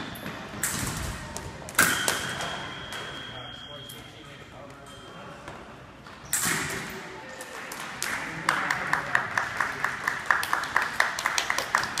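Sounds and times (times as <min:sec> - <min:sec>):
hands clapping: 0:07.4 - 0:12.0.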